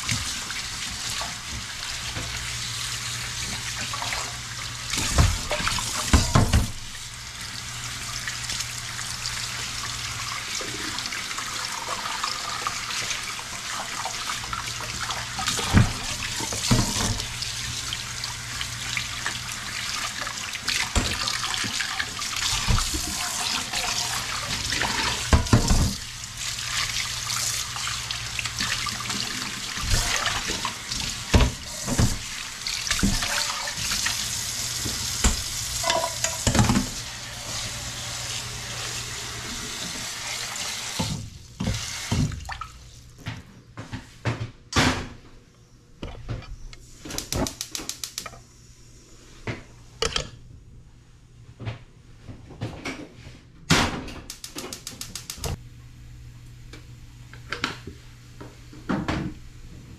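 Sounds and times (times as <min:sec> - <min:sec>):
pot being scrubbed: 0:18.6 - 0:41.1
scattered clicks: 0:47.2 - 0:48.3, 0:54.3 - 0:55.6.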